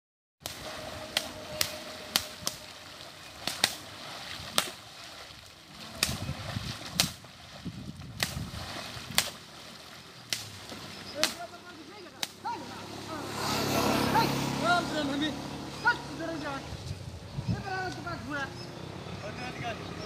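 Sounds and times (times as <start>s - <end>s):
sticks slapping water: 0.4s - 15.0s
splashing from wading: 0.4s - 18.5s.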